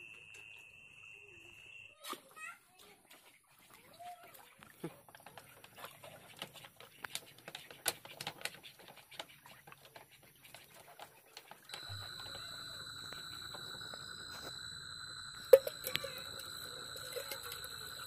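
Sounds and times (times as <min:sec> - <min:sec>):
water splashing and dripping: 0:11.4 - 0:18.0
steady high-pitched tone: 0:11.7 - 0:18.0.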